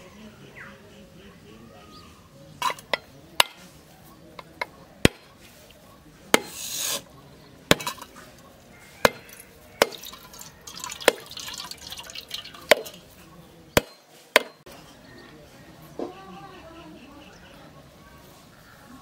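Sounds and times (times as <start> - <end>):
coconut shell cracking: 9.0 - 13.0
water trickling into steel bowl: 9.0 - 13.1.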